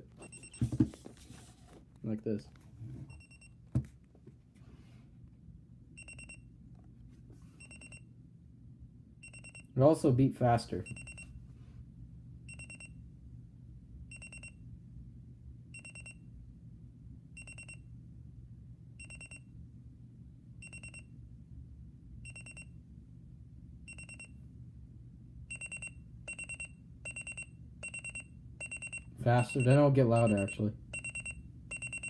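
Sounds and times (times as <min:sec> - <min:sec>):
alarm clock buzzer beeping: 0:09.2 - 0:09.7, 0:12.5 - 0:12.9, 0:19.0 - 0:19.4, 0:23.9 - 0:24.3, 0:25.5 - 0:32.0.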